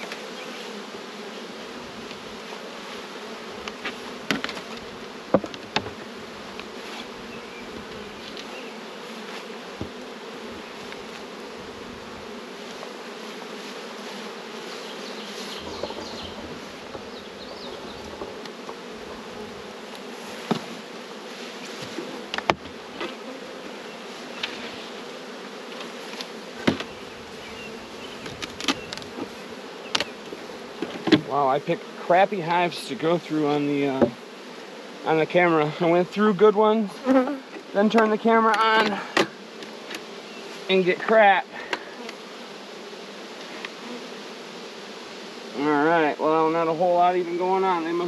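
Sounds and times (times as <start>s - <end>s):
bees buzzing: 0.0s - 48.0s
wooden hive boxes knocking: 3.6s - 8.6s, 9.7s - 11.3s, 15.5s - 20.9s, 21.6s - 23.8s, 25.7s - 31.3s, 33.8s - 34.3s, 37.5s - 40.1s.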